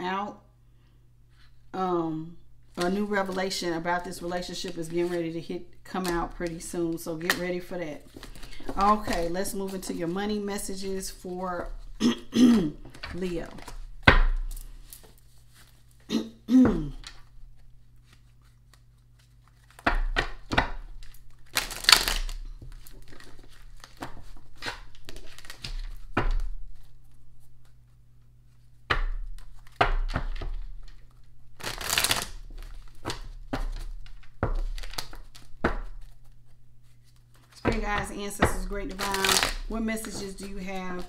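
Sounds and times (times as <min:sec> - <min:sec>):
cards being shuffled: 0:02.7 - 0:12.0, 0:12.7 - 0:16.1, 0:17.0 - 0:41.0
cards riffling: 0:06.0 - 0:10.1, 0:17.0 - 0:27.0, 0:28.6 - 0:37.8, 0:38.9 - 0:41.0.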